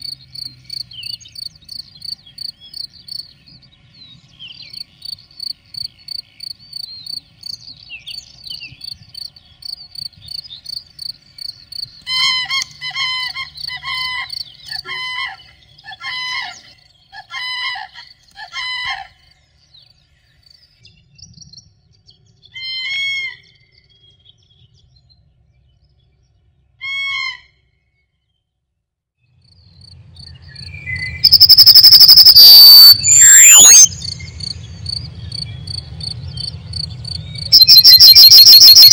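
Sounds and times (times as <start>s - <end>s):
insect chirping: 0.0s - 3.4s, 4.7s - 8.2s, 8.8s - 12.0s, 31.2s - 38.9s
birds calling: 0.0s - 20.8s, 30.2s - 38.9s
wind rumble and rushing: 33.9s - 37.6s.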